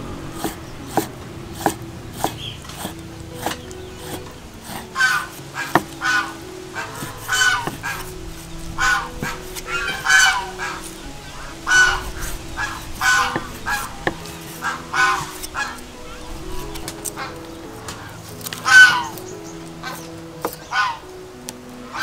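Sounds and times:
poultry honking: 0:00.0 - 0:21.1
cleaver chopping on wooden board: 0:00.4 - 0:06.0.

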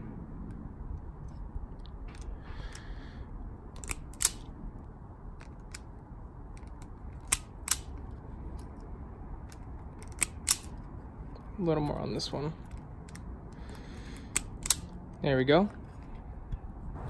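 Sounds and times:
wire stripper clicking shut: 0:03.8 - 0:04.5, 0:10.0 - 0:10.8, 0:12.7 - 0:14.9.

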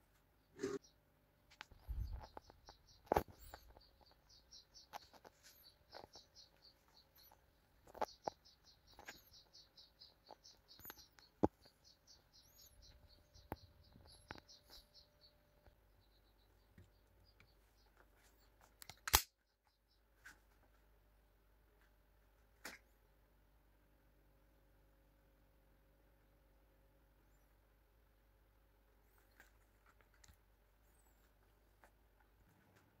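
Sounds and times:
rapid high-pitched chirping: 0:01.7 - 0:18.0.

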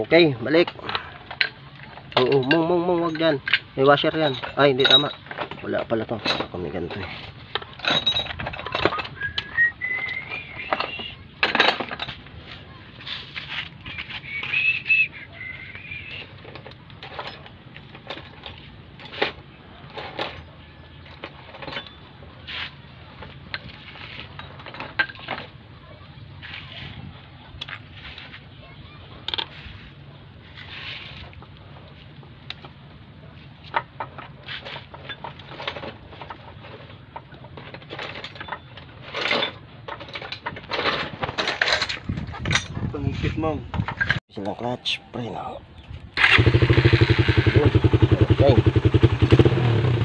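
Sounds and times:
hand tools clicking on metal parts: 0:00.0 - 0:25.6, 0:31.3 - 0:43.0
scraping rustle: 0:00.0 - 0:25.6, 0:26.2 - 0:44.2.

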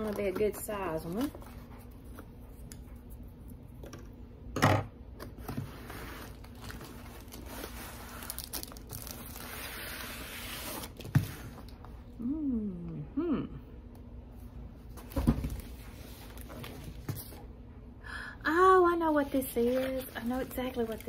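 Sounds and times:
plastic package crinkling and tearing: 0:06.1 - 0:11.1.

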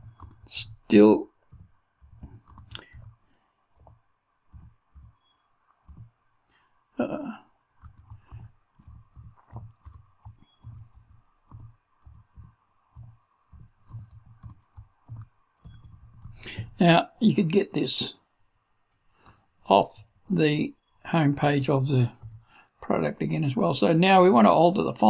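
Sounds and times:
keyboard typing: 0:00.0 - 0:06.3, 0:07.7 - 0:16.8, 0:21.5 - 0:22.5.

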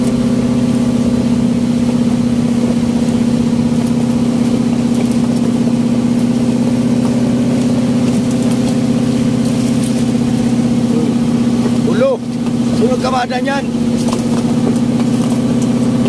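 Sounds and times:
boat engine droning: 0:00.0 - 0:16.0.

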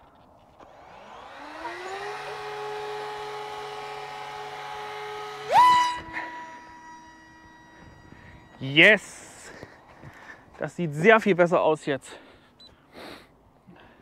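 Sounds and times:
electric motor and propeller whine: 0:00.0 - 0:10.2.

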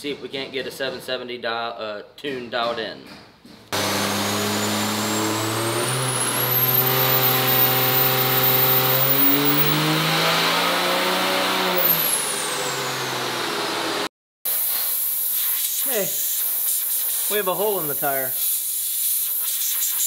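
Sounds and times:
diesel engine revving: 0:03.8 - 0:14.1
high whine: 0:03.8 - 0:14.1.

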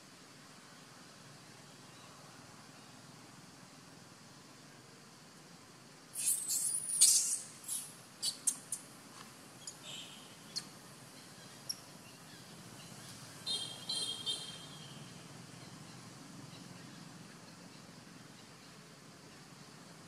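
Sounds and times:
high-pitched animal chirps: 0:06.2 - 0:08.8.

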